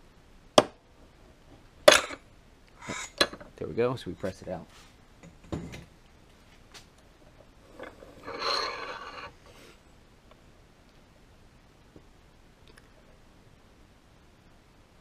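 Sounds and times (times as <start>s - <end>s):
metal scraping and rubbing: 2.8s - 3.2s, 7.6s - 9.5s.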